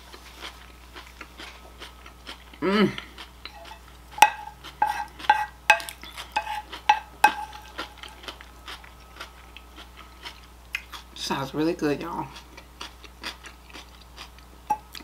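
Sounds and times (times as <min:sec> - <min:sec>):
cutlery clinking on ceramic plate: 0:03.5 - 0:07.8.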